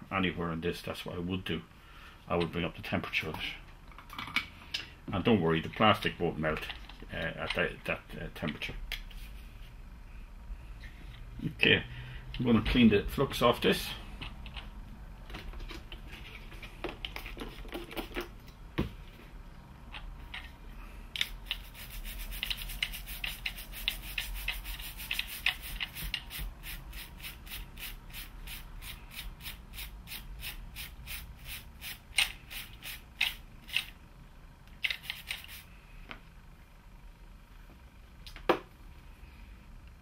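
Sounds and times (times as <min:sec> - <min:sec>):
brush scrubbing circuit board: 0:21.2 - 0:33.8, 0:34.9 - 0:35.7.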